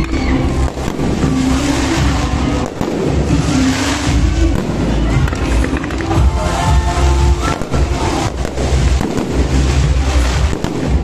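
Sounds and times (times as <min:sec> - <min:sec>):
fireworks bursting: 0:00.0 - 0:11.0
music playing: 0:00.0 - 0:11.0.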